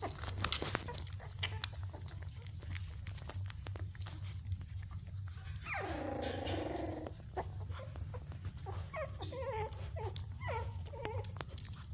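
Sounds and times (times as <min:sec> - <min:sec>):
puppies whining: 0:00.0 - 0:11.9
claws clicking on tile floor: 0:08.6 - 0:11.9.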